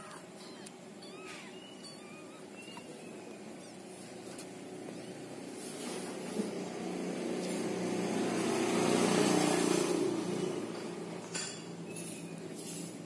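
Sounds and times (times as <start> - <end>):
vehicle engine passing by: 5.3 - 13.0.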